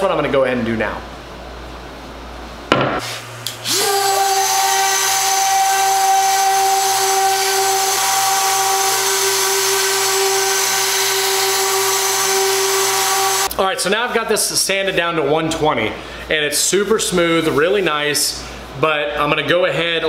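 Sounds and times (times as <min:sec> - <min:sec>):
brief knock: 0:02.7 - 0:03.1
orbital sander sanding wood: 0:03.1 - 0:13.5.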